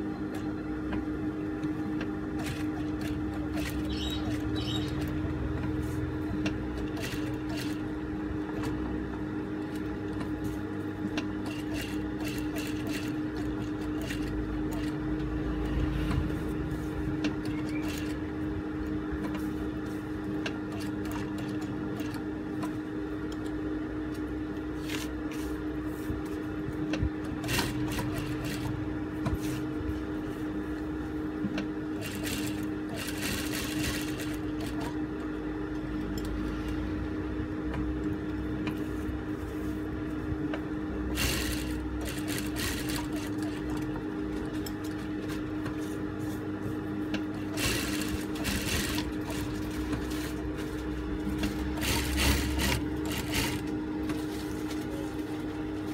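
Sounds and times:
sewing machine stitching: 2.4s - 5.2s, 6.8s - 7.9s, 11.4s - 15.3s, 17.3s - 18.3s, 27.3s - 28.8s, 31.9s - 35.0s, 41.1s - 45.5s, 47.3s - 54.2s.

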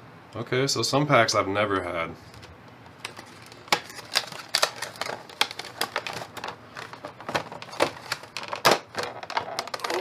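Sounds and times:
plastic tray crackling and clicking: 3.0s - 10.0s.

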